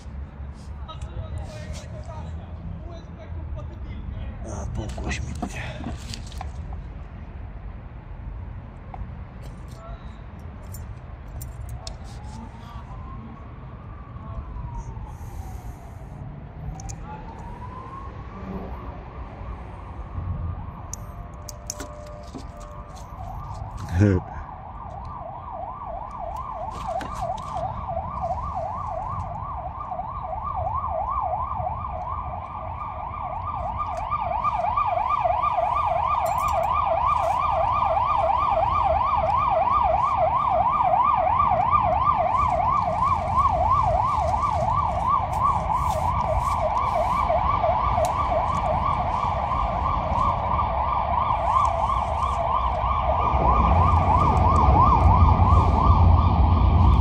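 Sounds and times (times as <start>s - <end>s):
siren yelping: 11.6s - 57.0s.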